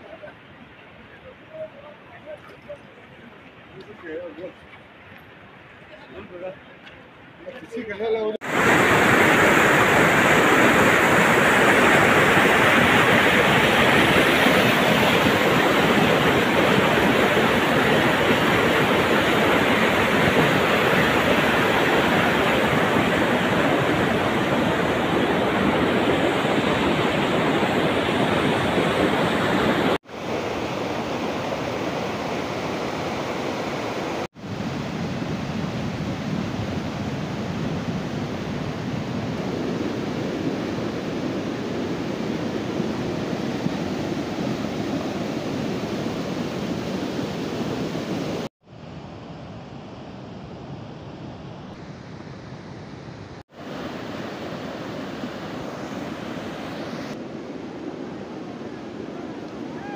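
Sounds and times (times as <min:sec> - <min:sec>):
flood water rushing: 0:08.4 - 0:48.5.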